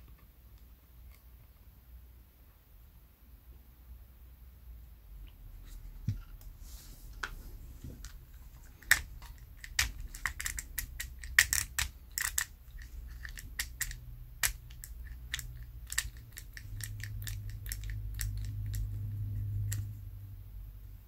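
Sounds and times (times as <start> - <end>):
plastic reel parts clicking: 8.0 - 19.9.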